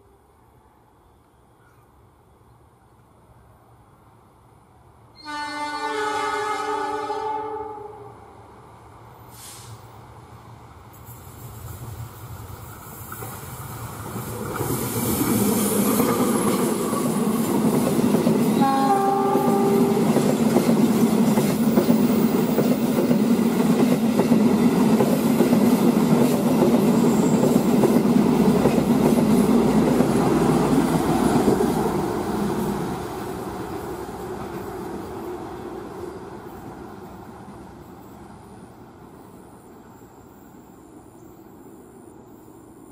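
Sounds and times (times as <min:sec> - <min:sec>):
diesel locomotive engine: 0:02.1 - 0:42.9
train horn blast: 0:05.2 - 0:08.3, 0:18.5 - 0:20.2
train coaches clattering on rails: 0:11.0 - 0:33.0.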